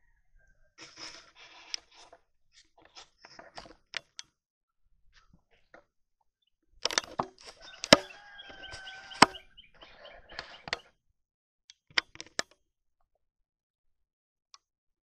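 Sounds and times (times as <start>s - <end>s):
steady pitched call: 7.6s - 10.8s.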